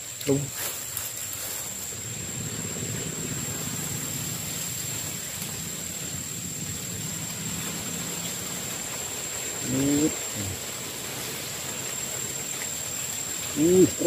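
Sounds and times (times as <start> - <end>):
constant high-pitched whine: 0.0 - 14.0
low hum: 1.5 - 14.0.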